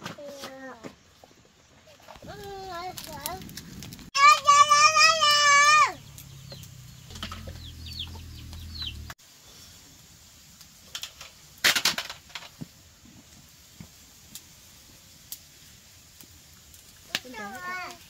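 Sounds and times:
chickens flurry: 4.2s - 9.2s
chickens chirping: 5.2s - 9.2s.

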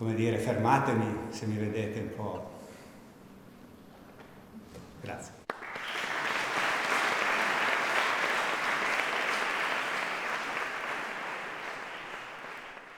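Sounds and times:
audience applauding: 5.5s - 12.9s.

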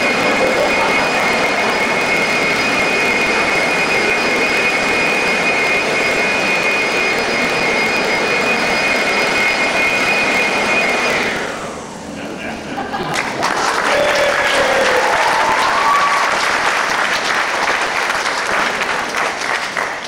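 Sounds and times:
electric leaf blower running: 0.0s - 12.4s.

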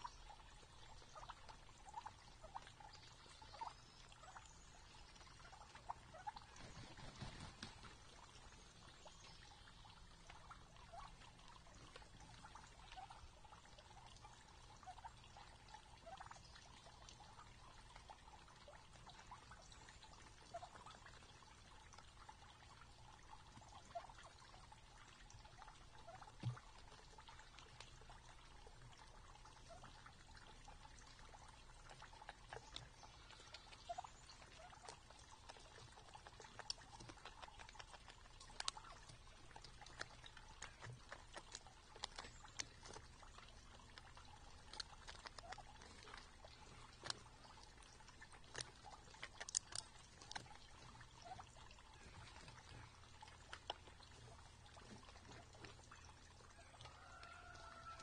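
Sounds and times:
low steady background noise: 0.0s - 58.0s
turkeys pecking grain clicks: 0.0s - 58.0s.

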